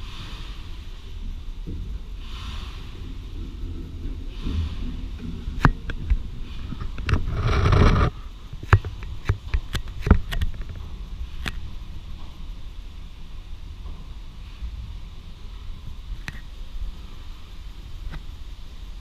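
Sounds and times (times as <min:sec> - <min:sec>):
steam hiss: 0:00.0 - 0:08.7, 0:10.8 - 0:19.0
low rumble: 0:10.1 - 0:19.0.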